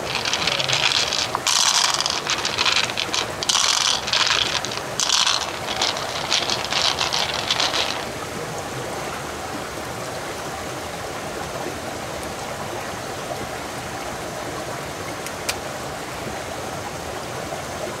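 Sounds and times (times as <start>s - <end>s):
shell clicking and rattling: 0.0s - 8.1s
stream running over rocks: 0.0s - 18.0s.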